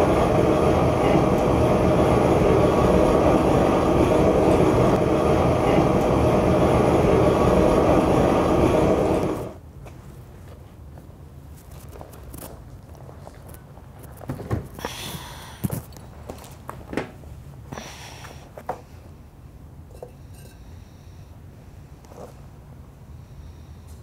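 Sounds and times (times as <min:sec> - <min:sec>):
gas burner flame rushing: 0:00.0 - 0:09.6.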